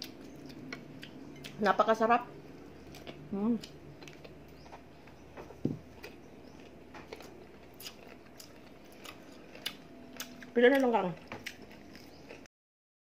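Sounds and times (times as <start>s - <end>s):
person chewing crunchy food: 0.0s - 1.6s, 2.5s - 12.5s
dull knock: 5.6s - 5.8s.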